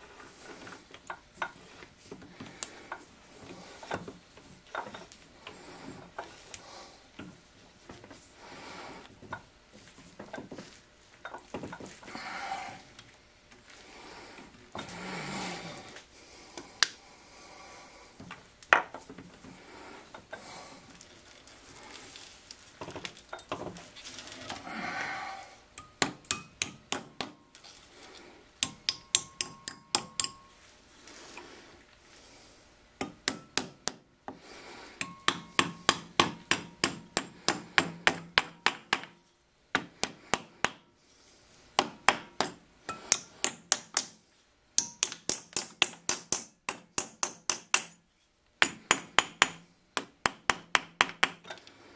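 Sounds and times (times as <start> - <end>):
small hammer tapping metal: 25.8 - 27.6, 28.6 - 30.5, 33.0 - 34.0, 35.0 - 40.8, 41.8 - 44.2, 44.8 - 48.0, 48.6 - 51.6.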